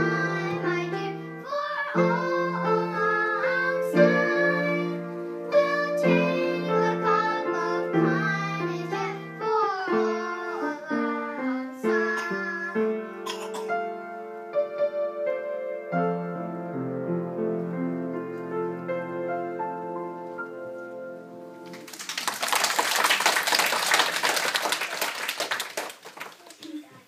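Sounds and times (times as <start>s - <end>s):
piano piece: 0.0s - 25.9s
audience applauding: 21.7s - 26.9s.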